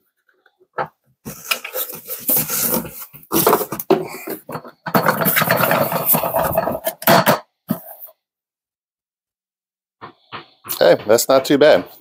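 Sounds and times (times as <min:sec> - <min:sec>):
plastic scrapes and knocks: 0:00.2 - 0:08.1, 0:10.0 - 0:12.0
plastic bucket scraping rustle: 0:01.3 - 0:08.1.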